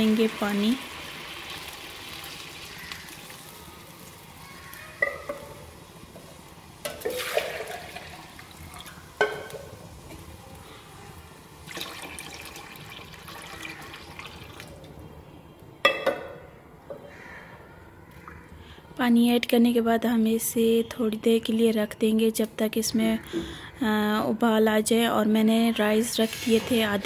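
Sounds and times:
curry bubbling in a pot: 0.2 - 6.1, 11.4 - 14.8.

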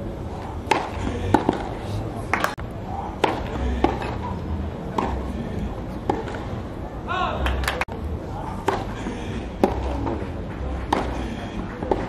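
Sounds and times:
crowd voices: 0.0 - 12.0
rackets striking tennis ball: 0.6 - 2.6, 3.2 - 5.4, 6.0 - 6.6, 8.6 - 12.0.

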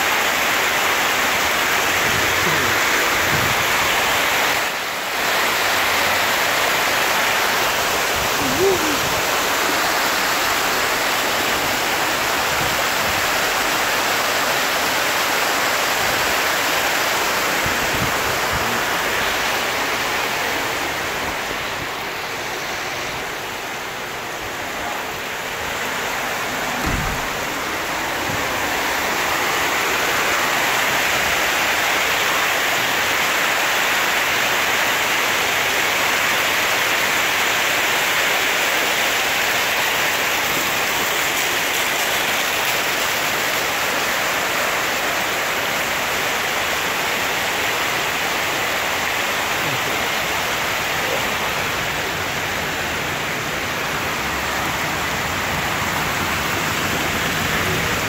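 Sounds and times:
floodwater rushing down street: 0.0 - 58.0
heavy rain: 0.0 - 58.0
dull knock: 26.8 - 27.6.

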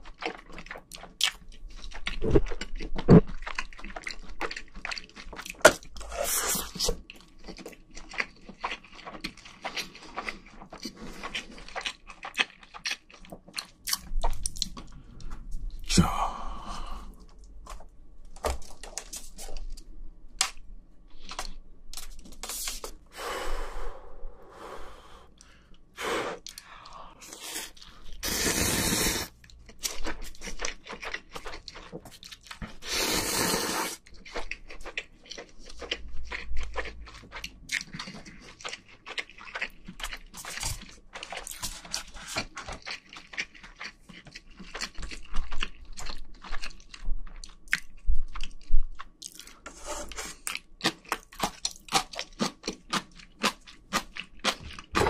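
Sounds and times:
wet chewing: 0.0 - 16.0, 26.4 - 55.0
slurping noodles: 5.6 - 7.0, 27.2 - 29.4, 32.8 - 34.0.

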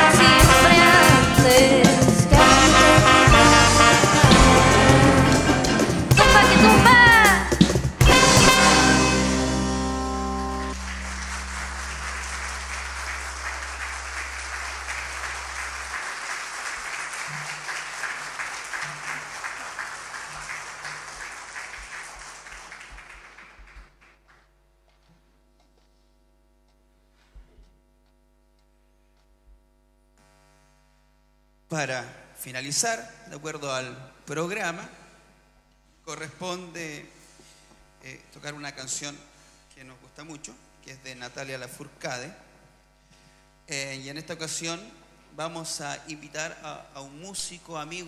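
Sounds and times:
band closing chord: 0.0 - 16.0
faint amplifier hum: 0.0 - 48.0
audience applauding: 2.4 - 7.3, 10.4 - 24.5.

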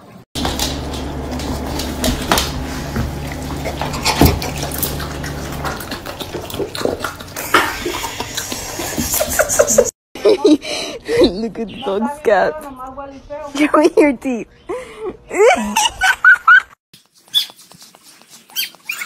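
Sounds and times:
dog chewing and slurping: 0.4 - 9.2, 17.0 - 19.0.

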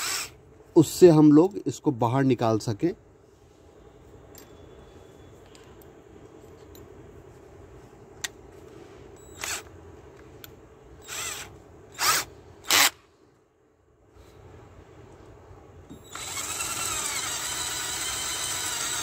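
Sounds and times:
short bursts of drill noise: 0.0 - 0.4, 9.3 - 9.7, 11.0 - 13.0, 16.0 - 19.0
faint handling noises: 3.2 - 10.8.

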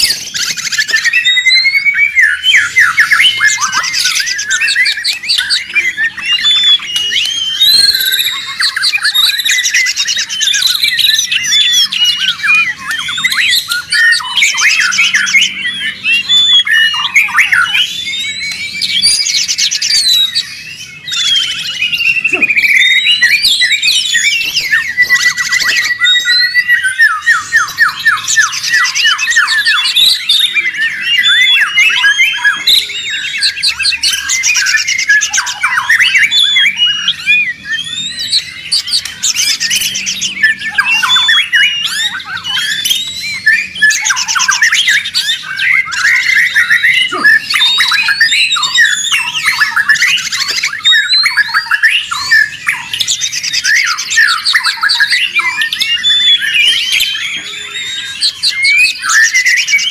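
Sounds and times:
songbird singing: 0.0 - 59.9.

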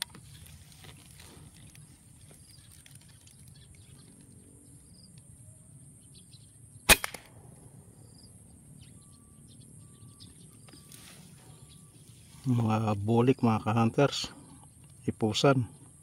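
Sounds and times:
air rifle shot crack: 6.8 - 7.6.

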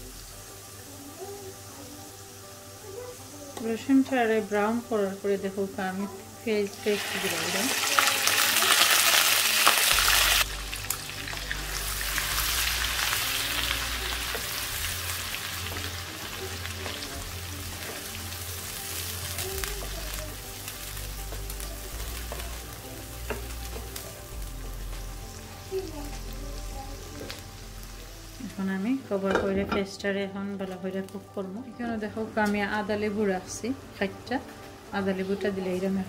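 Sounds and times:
paste sizzling in hot oil: 0.0 - 28.9
spoon stirring in frying pan: 20.5 - 26.3.

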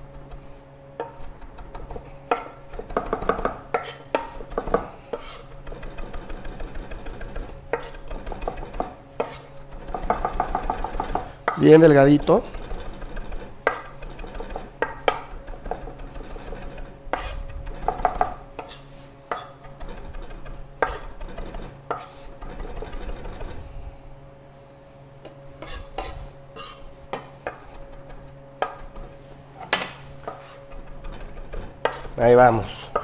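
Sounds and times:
knife chopping on wooden board: 1.0 - 11.6, 12.5 - 23.4, 29.7 - 32.2.

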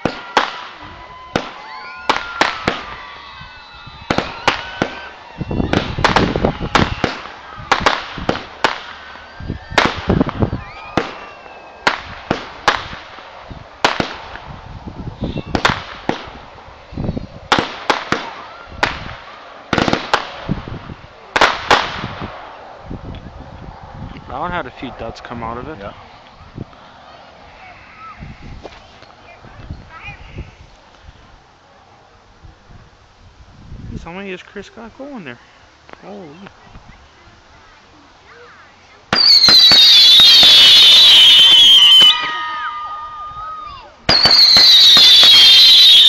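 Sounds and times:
fireworks bangs and pops: 0.0 - 16.6, 17.4 - 22.6, 39.1 - 42.6, 44.1 - 46.0
fireworks crackling: 0.0 - 31.7, 32.4 - 46.0.

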